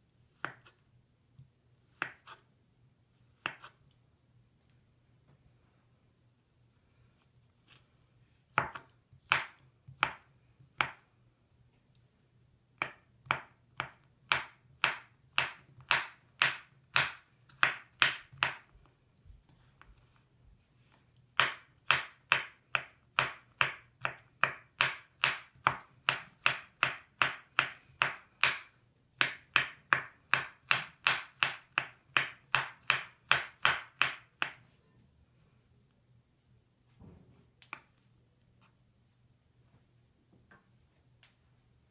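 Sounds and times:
knife chopping on wooden board: 0:01.9 - 0:02.4, 0:03.4 - 0:03.8, 0:08.5 - 0:10.2, 0:12.8 - 0:18.7, 0:21.4 - 0:34.6.

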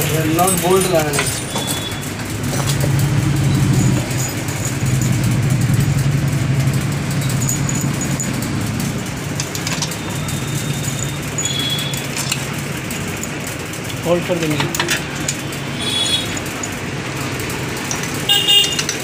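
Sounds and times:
engine idling hum: 0:01.9 - 0:13.9.

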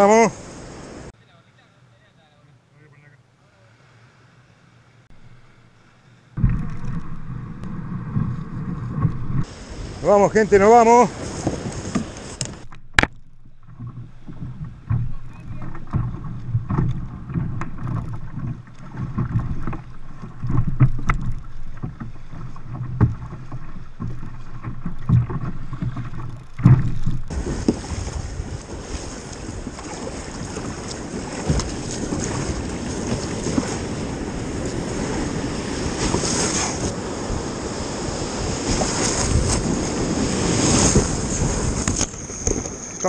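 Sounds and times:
breaking surf and spray: 0:00.0 - 0:01.1, 0:06.4 - 0:12.7, 0:27.3 - 0:43.0
water sloshing against kayak hull: 0:05.1 - 0:43.0
wind on microphone: 0:06.4 - 0:12.7, 0:13.6 - 0:43.0.

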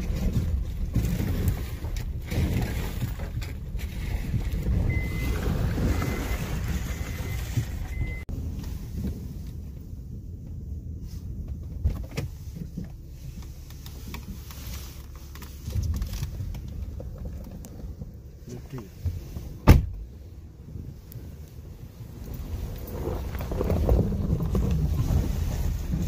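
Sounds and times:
engine and tyres rumbling: 0:00.0 - 0:26.0
short beep: 0:04.9 - 0:08.3.

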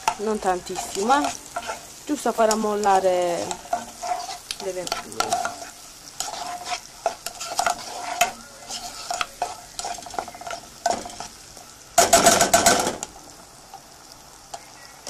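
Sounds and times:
spatula scraping pot: 0:00.0 - 0:11.4
vegetables sizzling in oil: 0:00.0 - 0:15.0.

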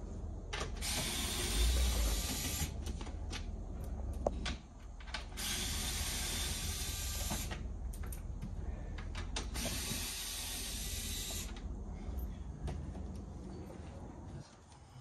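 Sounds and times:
power tool whirring: 0:00.8 - 0:02.8, 0:05.3 - 0:07.6, 0:09.4 - 0:11.6.

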